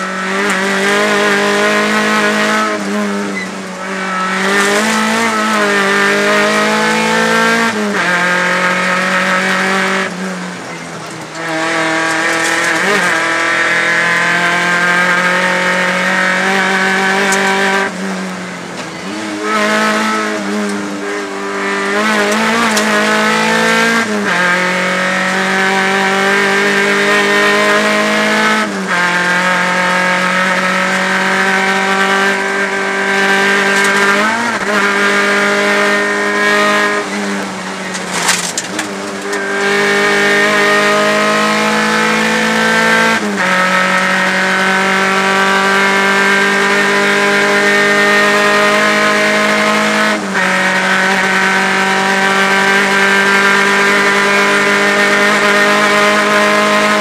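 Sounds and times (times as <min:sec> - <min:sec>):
rally car engine revving: 0:00.0 - 0:57.0.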